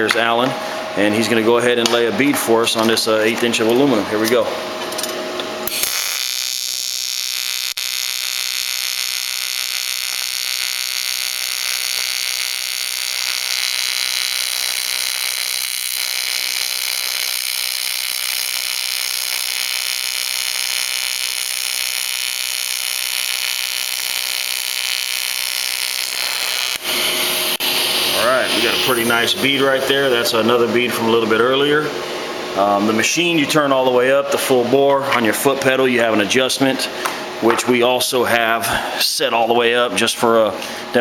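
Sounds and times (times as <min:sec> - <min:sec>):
welding arc buzzing: 0:02.2 - 0:31.4.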